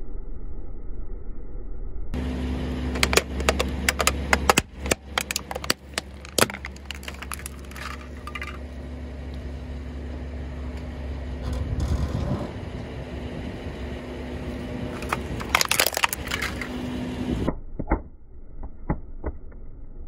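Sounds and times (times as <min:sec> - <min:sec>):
car low steady hum: 0:02.2 - 0:17.5
tyre crushing brittle objects: 0:02.9 - 0:08.6, 0:14.9 - 0:16.8.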